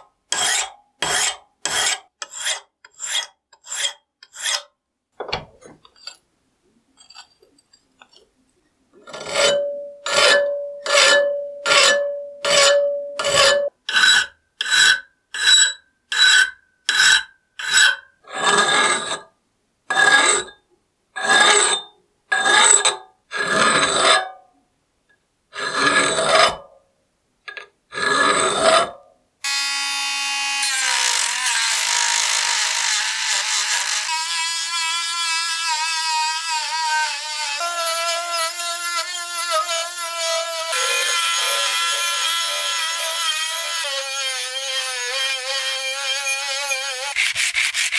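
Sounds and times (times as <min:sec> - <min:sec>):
hand file rasping on steel: 0:00.0 - 0:04.7, 0:09.0 - 0:19.2, 0:30.6 - 0:47.9
steel ringing: 0:09.3 - 0:13.7
rotary tool sanding: 0:30.6 - 0:47.9.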